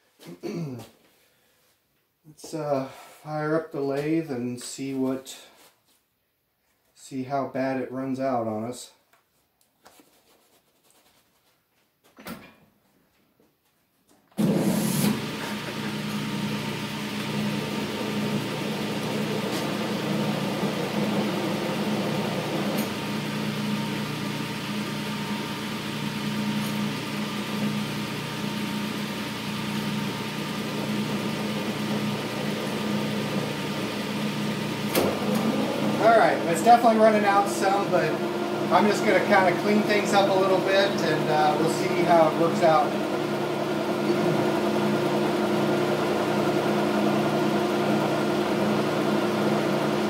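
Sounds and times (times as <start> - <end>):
metal lathe running: 14.4 - 50.0.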